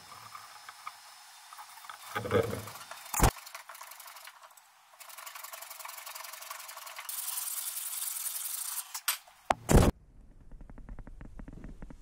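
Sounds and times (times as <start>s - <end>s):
sandpaper rubbing on wood: 5.0s - 8.9s.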